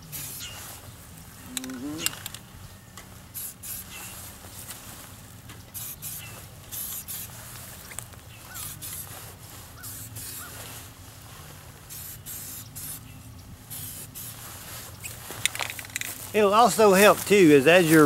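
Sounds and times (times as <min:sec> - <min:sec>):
spray can hissing: 0:00.1 - 0:00.5, 0:03.3 - 0:03.9, 0:05.7 - 0:07.4, 0:08.5 - 0:09.1, 0:09.8 - 0:10.6, 0:11.9 - 0:13.0, 0:13.7 - 0:14.5.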